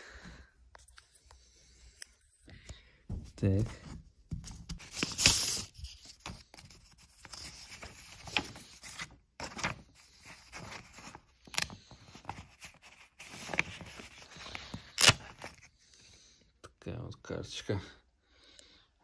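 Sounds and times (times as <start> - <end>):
paper rustling and crinkling: 3.5 - 15.7
envelope tearing: 4.8 - 11.9, 12.5 - 15.6.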